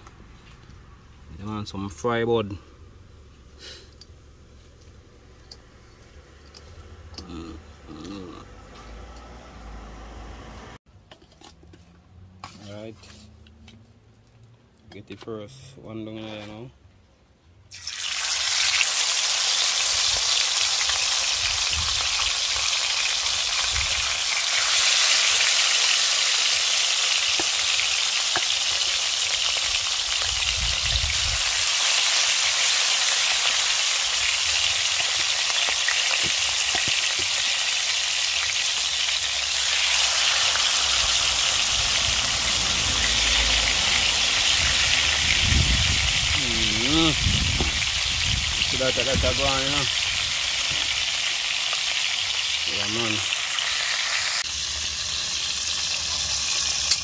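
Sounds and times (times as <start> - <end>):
meat sizzling in hot oil: 17.7 - 57.0.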